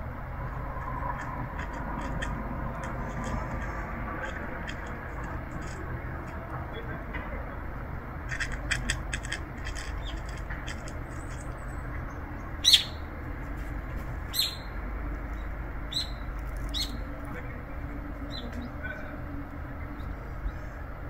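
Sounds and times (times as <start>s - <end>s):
low rumble: 0.0s - 20.8s
high bird chirps: 12.4s - 13.1s, 14.3s - 14.8s, 15.4s - 17.1s.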